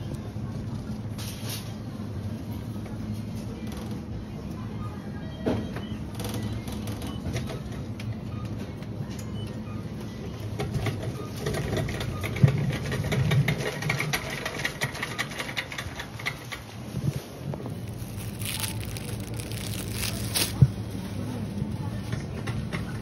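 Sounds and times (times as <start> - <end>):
shopping cart rattling: 10.6 - 23.0.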